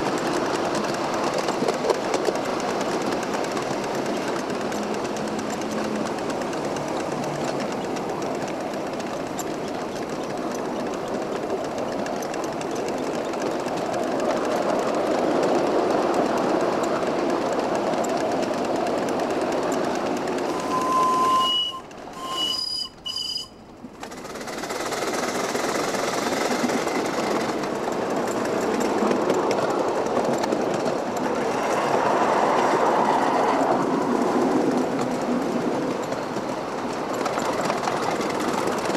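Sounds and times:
steam locomotive running: 0:00.0 - 0:38.9.

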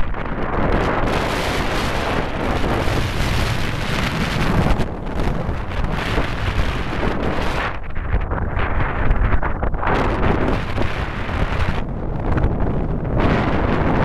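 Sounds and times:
strong wind on microphone: 0:00.0 - 0:14.0.

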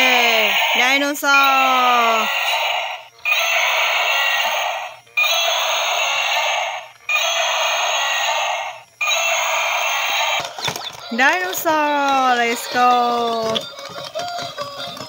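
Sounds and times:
toy dinosaur electronic roar: 0:00.0 - 0:10.8.

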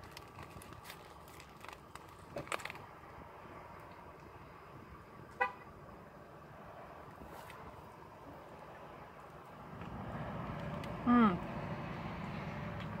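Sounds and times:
biting and chewing bread: 0:00.0 - 0:02.9
paper wrapper crinkling: 0:00.0 - 0:02.9.

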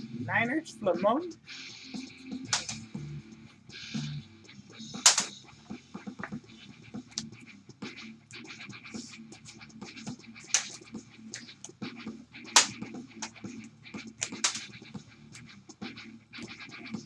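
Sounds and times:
cards rustling and clicking: 0:02.5 - 0:02.8, 0:05.1 - 0:05.3, 0:10.5 - 0:10.8, 0:14.2 - 0:14.8
plastic card holder snaps: 0:05.1 - 0:05.3.

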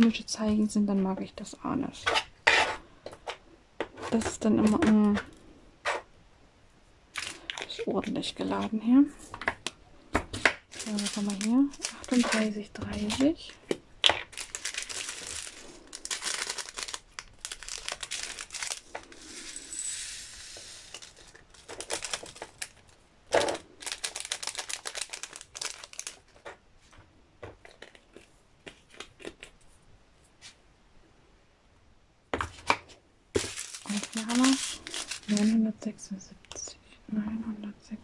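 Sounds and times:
plastic bags crinkling: 0:07.1 - 0:08.4, 0:10.4 - 0:19.9, 0:20.8 - 0:26.6, 0:33.4 - 0:35.6.

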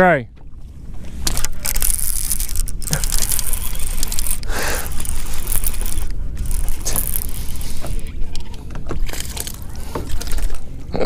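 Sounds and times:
wind on microphone: 0:00.5 - 0:11.0
scraping and clicking of rod: 0:01.0 - 0:10.7
fishing reel cranking: 0:01.2 - 0:10.6.

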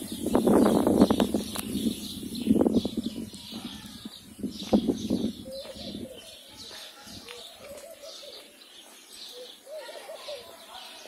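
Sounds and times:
small birds chirping: 0:00.0 - 0:11.0
footsteps scuffing on path: 0:03.5 - 0:09.6
doves cooing: 0:04.8 - 0:11.0.

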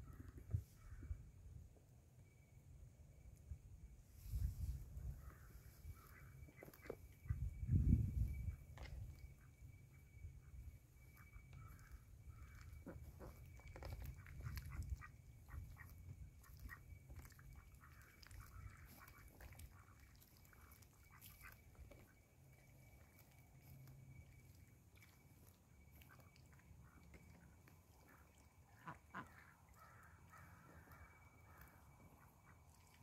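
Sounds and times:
duck bills slurping in water: 0:11.1 - 0:33.0.

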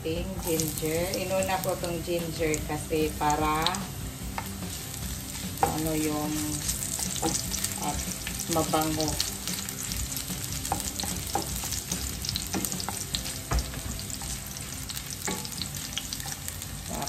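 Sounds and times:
garlic sizzling in oil: 0:00.0 - 0:17.0
spoon scraping and tapping pan: 0:10.7 - 0:14.5, 0:15.2 - 0:17.0.

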